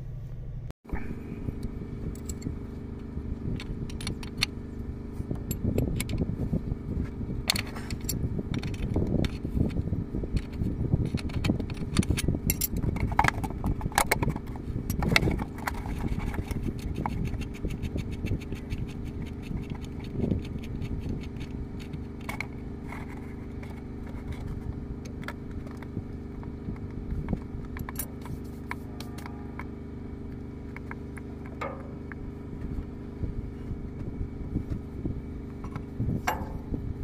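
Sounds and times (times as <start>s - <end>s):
low engine hum: 0.0s - 37.0s
spanner clinking on metal: 31.4s - 32.2s, 35.7s - 36.8s.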